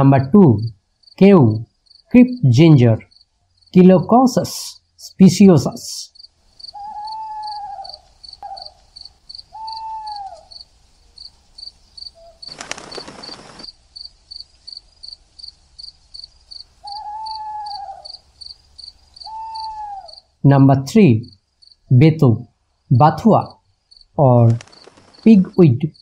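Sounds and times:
crickets chirping: 0:00.2 - 0:26.0
hooting calls: 0:06.0 - 0:11.2, 0:12.1 - 0:13.7, 0:16.5 - 0:20.4.

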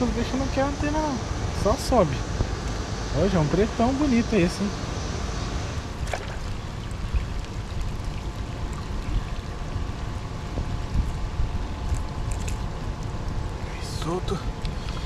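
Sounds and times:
wind on microphone: 0:05.4 - 0:13.8
water splashing and trickling: 0:05.9 - 0:15.0.

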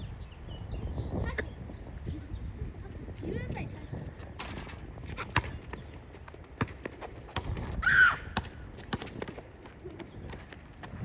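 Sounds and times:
basketball bouncing on court: 0:05.2 - 0:09.4.

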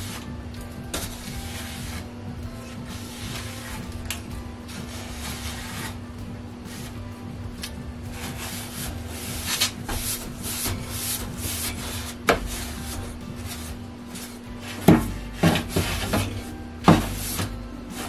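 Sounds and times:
brush scraping wooden boards: 0:00.0 - 0:04.0, 0:04.7 - 0:07.1, 0:08.1 - 0:18.0
brush knocking on wood: 0:08.2 - 0:17.6.

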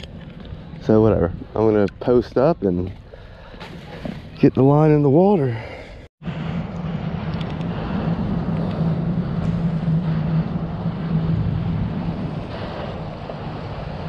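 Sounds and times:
motorboat engine humming: 0:06.3 - 0:14.0.

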